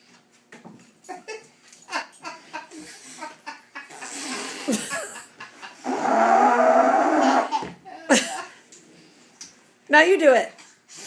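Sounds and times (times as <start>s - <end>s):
man blowing his nose: 4.0s - 4.8s, 5.8s - 7.6s.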